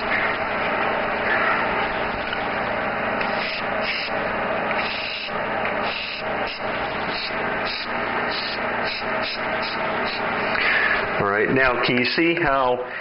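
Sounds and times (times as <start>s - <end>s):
air compressor motor running: 0.0s - 11.8s
airbrush hissing: 3.2s - 11.1s.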